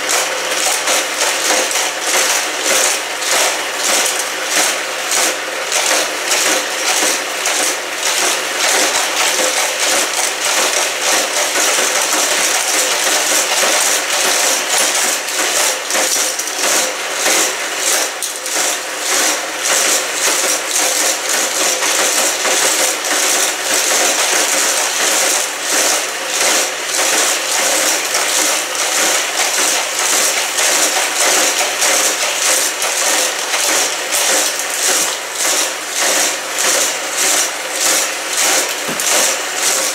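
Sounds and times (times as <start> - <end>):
toy cars clattering on plastic track: 0.0 - 39.9
toy track motors whirring: 0.0 - 39.9.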